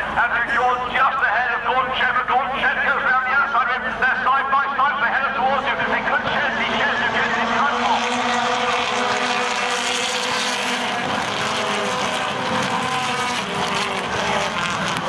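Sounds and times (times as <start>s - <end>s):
racing cars passing at high revs: 5.0s - 15.0s.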